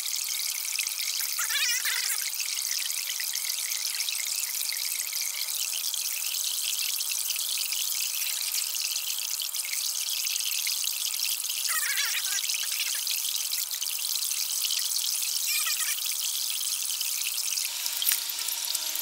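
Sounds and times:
squeaky chirp: 1.2s - 2.2s, 15.4s - 16.0s.

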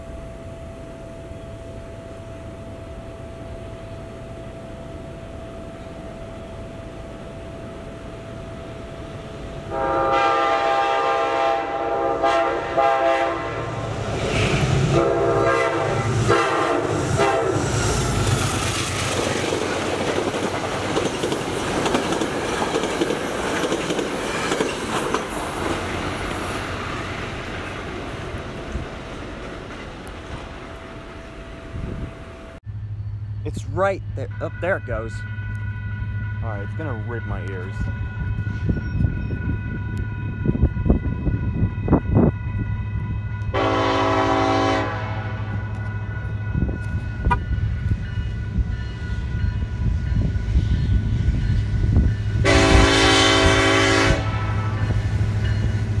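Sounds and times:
train passing: 0.0s - 56.0s
train air horn blasts: 9.7s - 13.8s, 14.4s - 18.1s, 33.5s - 47.8s, 52.4s - 55.1s.

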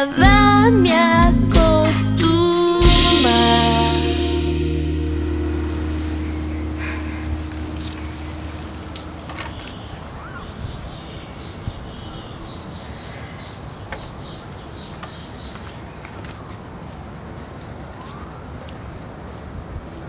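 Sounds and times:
background hiss: 2.1s - 13.8s
bird chirps: 5.7s - 15.8s.

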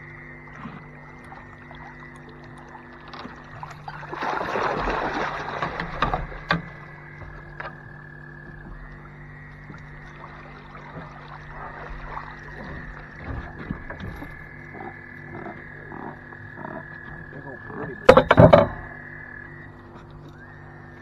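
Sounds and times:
steady high drone: 0.0s - 4.3s, 6.2s - 21.0s
steady low hum: 0.0s - 21.0s
sharp knocks: 18.0s - 19.0s.

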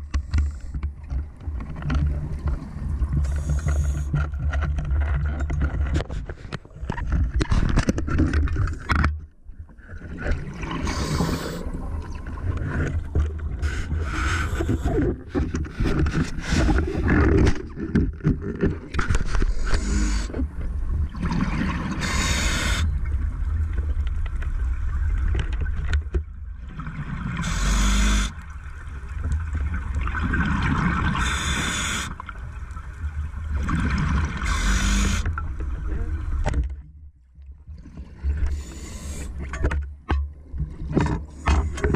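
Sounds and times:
low water rumble: 0.0s - 41.9s
exhaled bubbles hissing: 10.4s - 12.2s, 19.5s - 20.3s, 21.3s - 22.9s, 27.4s - 28.4s, 30.3s - 32.2s, 38.4s - 39.4s.

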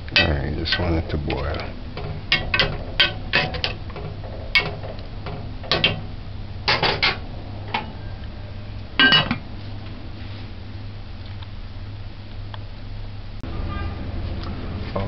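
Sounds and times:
utensils knocking: 0.0s - 8.0s, 9.0s - 9.4s
lid clattering on pot: 1.5s - 6.1s, 6.7s - 7.9s, 9.0s - 9.4s.

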